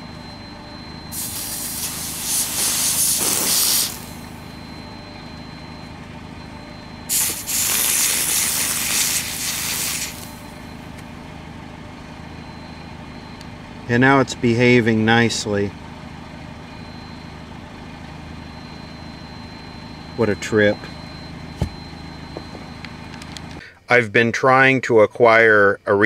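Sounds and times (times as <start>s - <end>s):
truck engine running: 0.0s - 24.0s
aerosol spray hissing: 1.1s - 4.1s, 7.1s - 10.3s.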